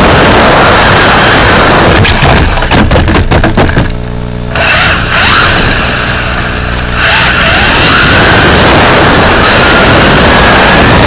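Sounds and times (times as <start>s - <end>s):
rc car motor and tyres running: 0.0s - 11.0s
steady low hum: 0.0s - 11.0s
crackles and clicks: 5.4s - 11.0s.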